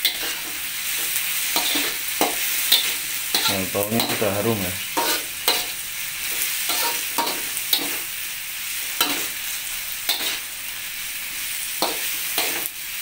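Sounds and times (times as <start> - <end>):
metal spatula scraping wok: 0.0 - 8.1, 8.9 - 9.5, 10.1 - 10.5
vegetables sizzling in oil: 0.0 - 13.0.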